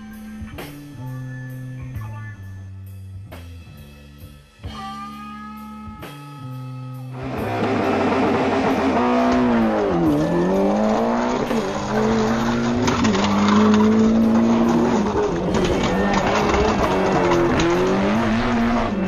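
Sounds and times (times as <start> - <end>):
guitar-led music: 0.0 - 3.0, 4.6 - 19.0
race car engine revving: 7.2 - 19.0.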